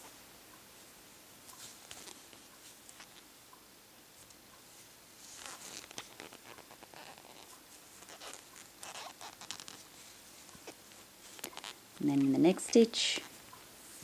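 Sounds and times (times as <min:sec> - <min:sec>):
yarn scratchy rustles: 0:01.4 - 0:03.3, 0:04.7 - 0:14.0.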